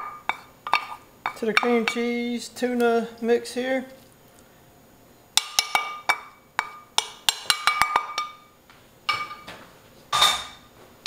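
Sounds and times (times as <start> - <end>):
wooden spoon knocking on metal pan: 0.0 - 2.1, 5.4 - 8.4, 9.1 - 9.6.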